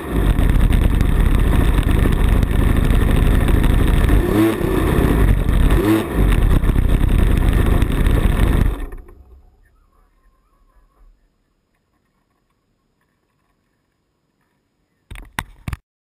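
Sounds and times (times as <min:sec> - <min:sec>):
two-stroke engine idling: 0:00.0 - 0:09.5.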